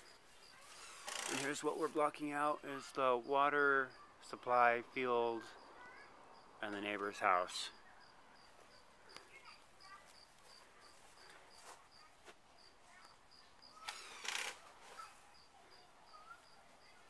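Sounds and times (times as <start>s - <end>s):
cricket chirping: 4.8s - 6.8s, 7.6s - 17.0s.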